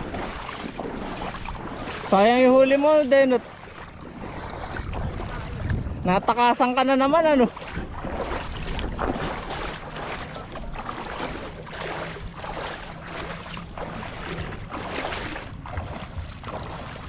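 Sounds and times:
surf washing on shore: 0.0 - 17.0
wind buffeting microphone: 0.0 - 17.0
steady low rumble: 3.4 - 17.0.

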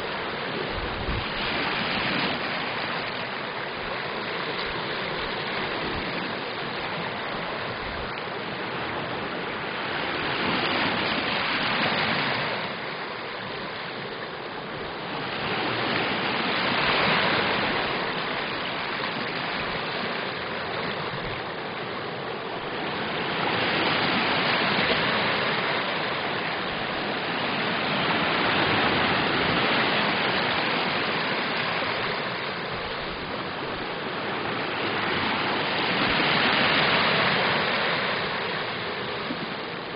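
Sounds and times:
waves washing over pebbly shore: 0.0 - 39.9.

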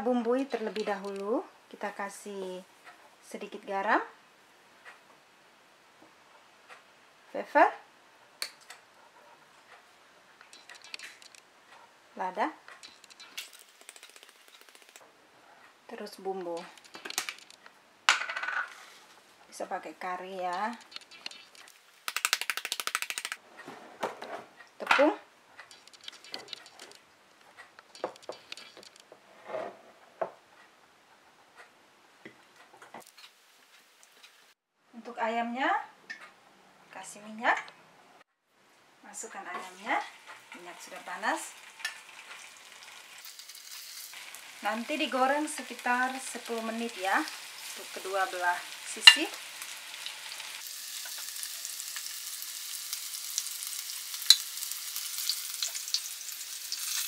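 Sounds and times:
small crackles: 8.4 - 11.9, 12.6 - 15.0, 16.4 - 17.8, 20.4 - 23.4, 25.6 - 29.1, 32.6 - 34.6, 40.0 - 48.0, 48.6 - 57.0
chicken sizzling in oil: 39.8 - 57.0.

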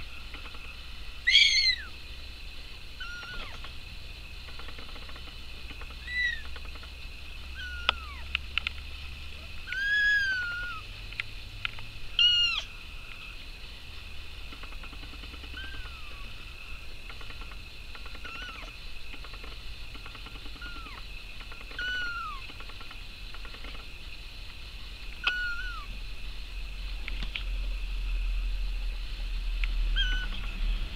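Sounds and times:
kittens mewing: 1.3 - 1.9, 3.0 - 3.6, 7.6 - 8.2, 9.6 - 10.8, 12.2 - 12.7, 15.4 - 16.3, 18.2 - 18.7, 21.7 - 22.4, 25.2 - 25.9, 30.0 - 30.5
sharp clicks: 7.8 - 8.9.

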